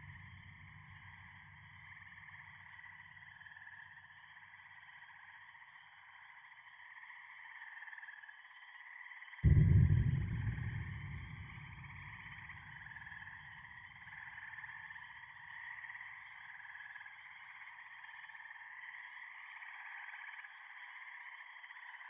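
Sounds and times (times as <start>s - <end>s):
deep low rumble: 9.4s - 14.0s.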